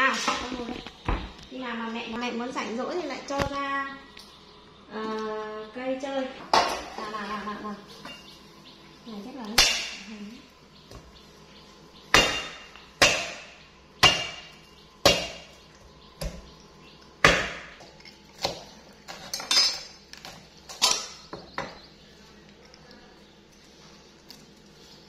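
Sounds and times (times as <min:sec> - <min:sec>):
knife chopping on wooden board: 0:12.1 - 0:15.5, 0:17.2 - 0:17.8.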